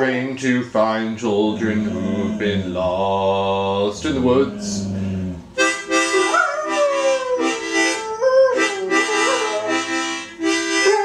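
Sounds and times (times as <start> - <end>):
dog howling: 1.4 - 3.0, 4.0 - 5.5, 6.1 - 9.9
harmonica chords: 5.6 - 11.0.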